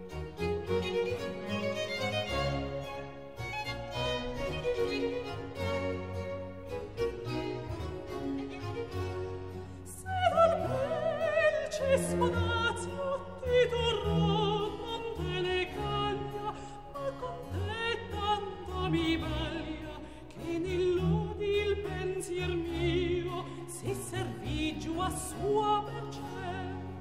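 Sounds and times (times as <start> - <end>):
soft instrumental accompaniment: 0.0 - 27.0
person singing opera: 4.0 - 6.3, 9.8 - 27.0.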